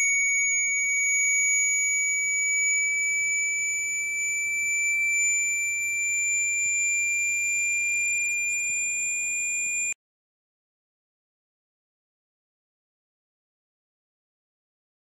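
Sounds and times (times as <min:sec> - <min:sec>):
sine tone gliding upward: 0:00.0 - 0:10.0.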